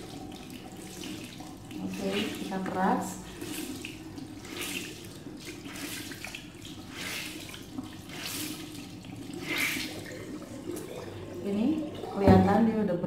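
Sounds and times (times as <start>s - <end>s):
tap water running into sink: 0.0s - 13.0s
sponge squeezed under water: 9.4s - 10.3s.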